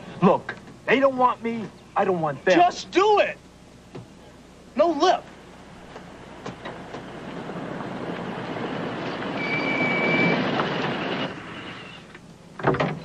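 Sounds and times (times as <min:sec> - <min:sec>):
vehicle rumbling past: 0:06.1 - 0:11.8
brief high squeal: 0:09.4 - 0:12.1.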